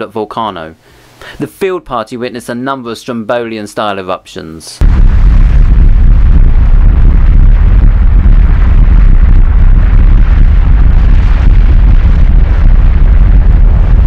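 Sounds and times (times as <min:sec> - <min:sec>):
volcanic gas roaring: 0:04.8 - 0:14.0.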